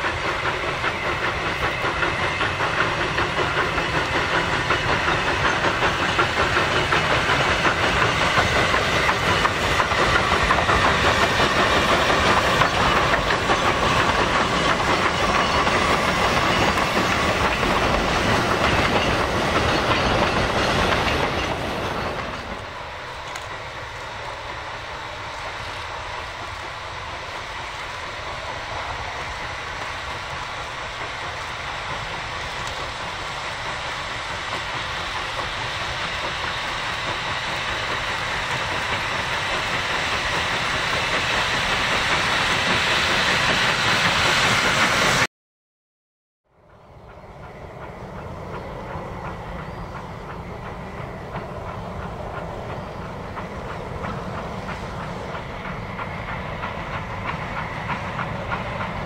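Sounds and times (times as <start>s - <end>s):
wagons clacking over rail joints: 0.0s - 23.6s
steam locomotive hauling train: 0.0s - 45.3s, 46.5s - 59.0s.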